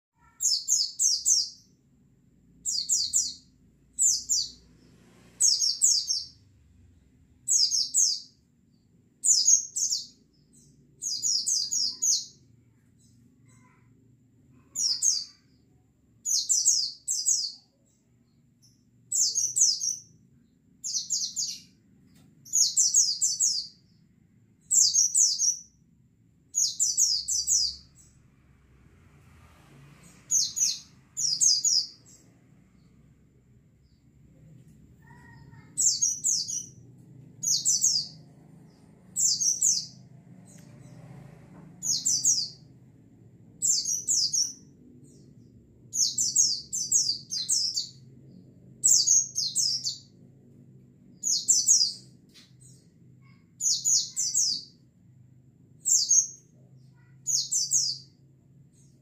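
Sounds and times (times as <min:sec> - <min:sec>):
bird chirping: 0:00.2 - 0:01.8, 0:02.4 - 0:25.9, 0:26.5 - 0:28.2, 0:29.9 - 0:42.8, 0:43.4 - 0:50.2, 0:51.0 - 0:55.0, 0:55.7 - 0:59.0.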